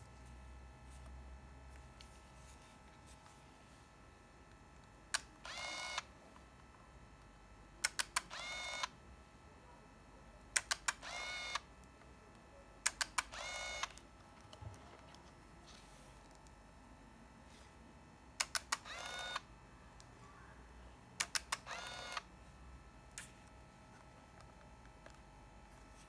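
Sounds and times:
camera film winding motor whir: 0:05.4 - 0:06.1, 0:08.0 - 0:08.9, 0:10.8 - 0:11.6, 0:13.2 - 0:14.0, 0:18.4 - 0:19.4, 0:21.2 - 0:22.3.

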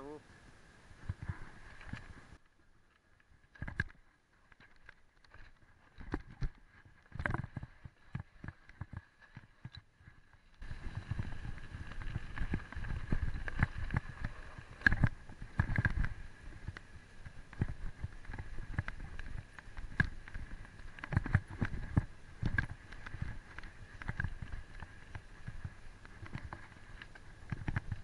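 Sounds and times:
bike rattling over bumps: 0:10.6 - 0:28.0.

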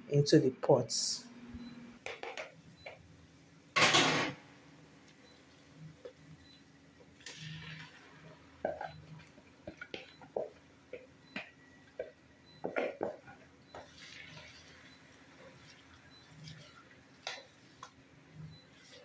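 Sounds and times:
spoon knocking and scraping pot: 0:11.4 - 0:14.7.

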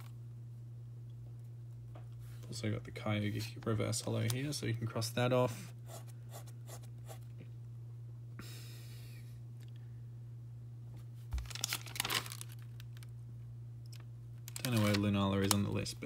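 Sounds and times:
low hum: 0:00.0 - 0:16.0
paper crinkling: 0:11.3 - 0:13.1, 0:14.4 - 0:15.7
paper page flipping: 0:11.3 - 0:13.1, 0:14.5 - 0:15.7.

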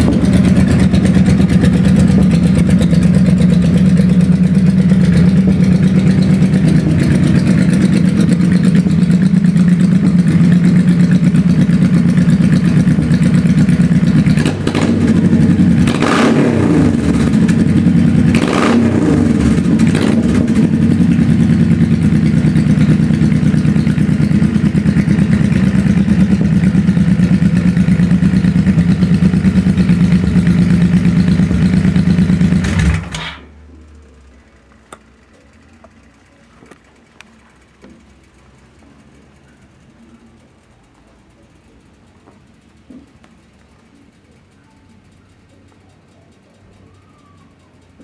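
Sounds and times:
motorcycle engine blipping: 0:00.0 - 0:48.0
small ticks: 0:34.7 - 0:48.0.

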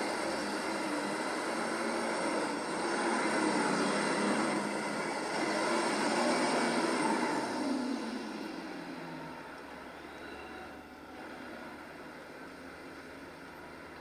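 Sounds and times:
tractor engine running flat out: 0:00.0 - 0:10.2.

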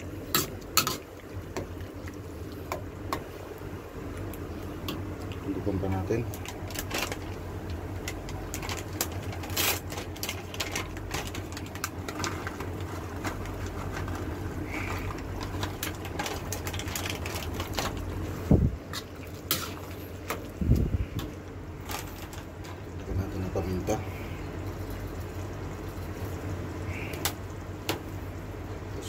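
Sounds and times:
stew simmering with pops: 0:00.0 - 0:23.1
steady low hum: 0:00.0 - 0:29.0.

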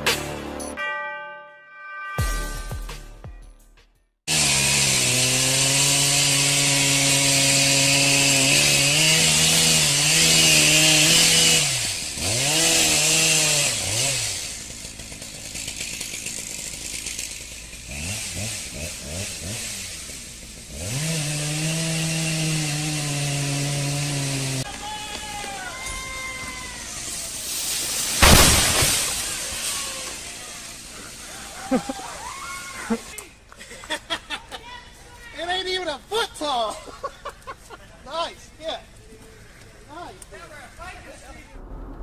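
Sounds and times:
chainsaw cutting wood: 0:04.3 - 0:33.3.

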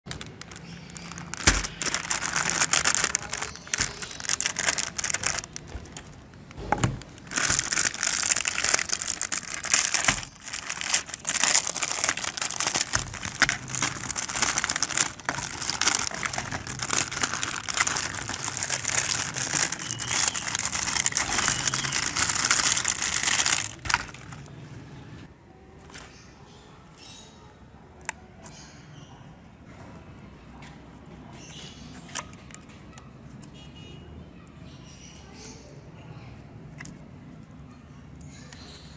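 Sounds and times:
plastic packaging crinkling: 0:00.0 - 0:24.6.

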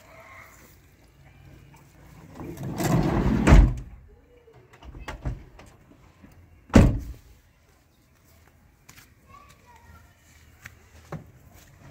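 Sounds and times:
car door slamming: 0:06.7 - 0:07.2.

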